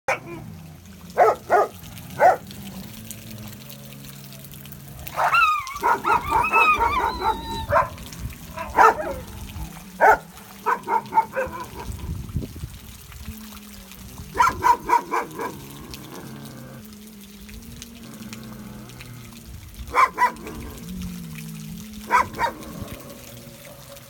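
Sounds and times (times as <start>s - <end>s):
dogs barking: 0.1s - 3.0s, 5.0s - 12.0s, 14.3s - 15.7s, 19.8s - 20.8s, 22.0s - 22.8s
high wavering dog yelps: 5.1s - 9.3s, 10.0s - 12.0s, 14.4s - 15.6s, 19.9s - 20.4s, 22.1s - 22.6s.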